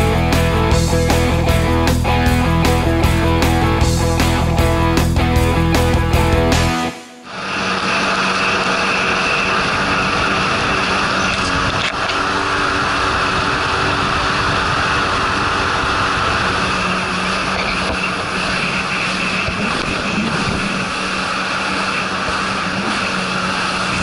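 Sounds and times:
jet ski engine running: 0.0s - 24.0s
water spray rushing: 12.0s - 24.0s.

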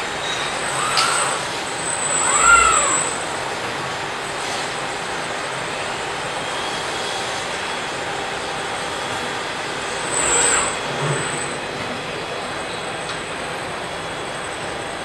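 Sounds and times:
machinery roaring: 0.0s - 4.5s.

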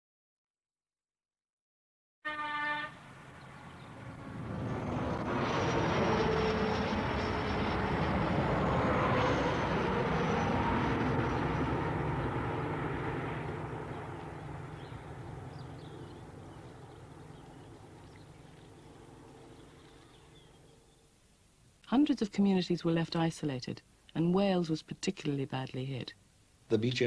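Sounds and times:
faint whine: 3.0s - 24.2s.

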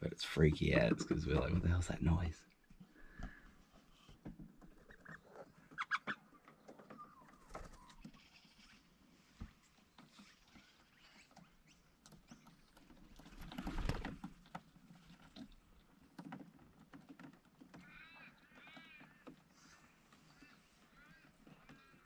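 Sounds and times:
faint bird calls: 2.9s - 12.8s, 17.8s - 22.0s
rustle: 3.1s - 22.0s
parrots tapping on a roof: 12.1s - 22.0s.

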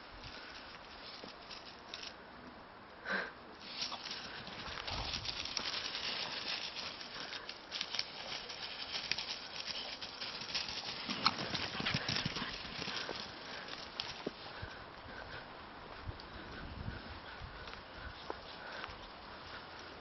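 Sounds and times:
footsteps crunching dry leaves: 3.6s - 14.6s.

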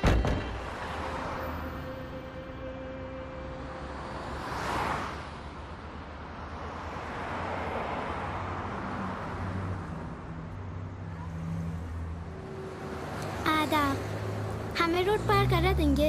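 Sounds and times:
cars passing: 0.0s - 16.0s.

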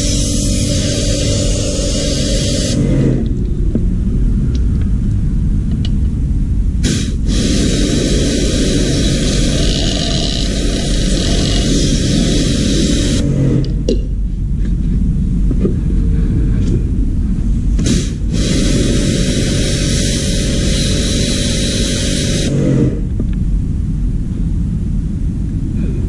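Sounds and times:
compressed air hissing: 0.0s - 3.2s, 6.8s - 13.7s, 17.6s - 23.1s
spray system low rumble: 0.0s - 26.0s.

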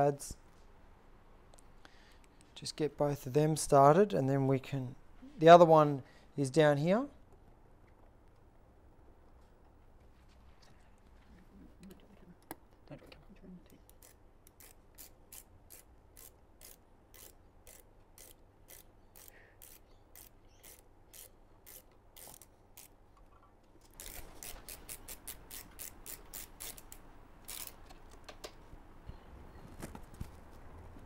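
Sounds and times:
hand ratchet clicking: 13.9s - 23.0s, 23.9s - 27.8s.

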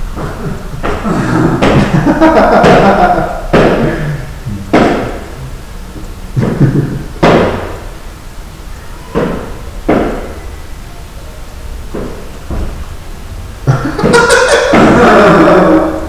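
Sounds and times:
voices: 3.8s - 5.6s.

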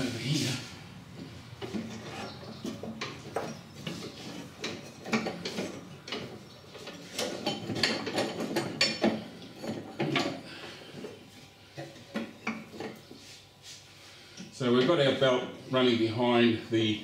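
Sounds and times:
belt clicking and scraping on pulleys: 1.2s - 11.2s.

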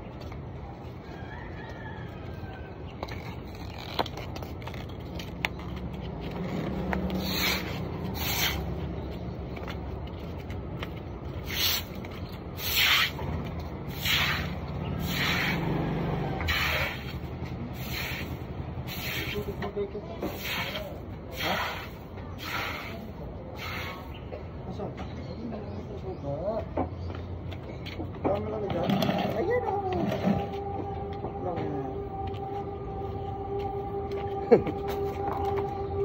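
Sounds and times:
broom sweeping concrete: 7.0s - 8.9s, 11.4s - 15.8s, 16.4s - 24.2s.

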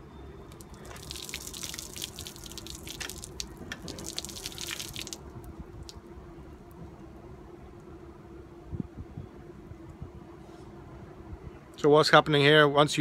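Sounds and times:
hot water splashing on metal: 0.5s - 5.2s.

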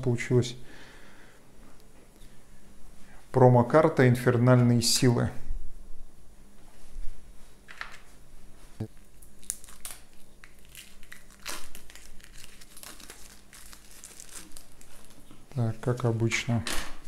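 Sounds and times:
packaging crinkling and rustling: 8.9s - 16.2s.

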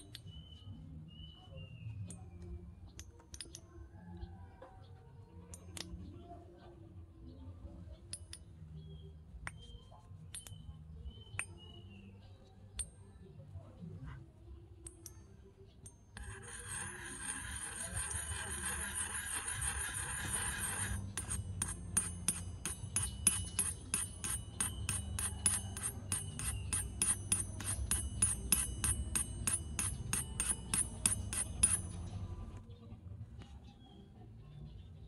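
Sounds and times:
metal spoon scraping metal wok: 16.2s - 32.3s.

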